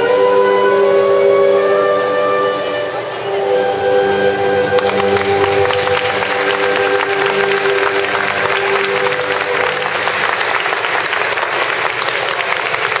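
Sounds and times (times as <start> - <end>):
orchestral ballet music chord: 0.0 - 11.8
audience applauding: 4.8 - 13.0.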